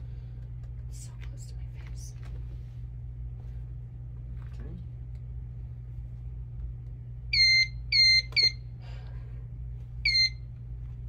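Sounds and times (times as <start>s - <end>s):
metal detector wand beeping: 7.4s - 8.6s, 10.0s - 10.4s.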